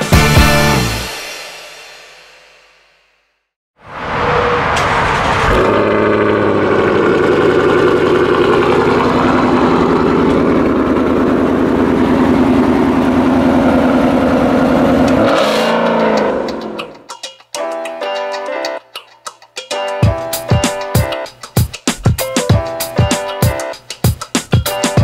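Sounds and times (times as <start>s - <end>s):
car engine starting and idling: 4.5s - 16.9s.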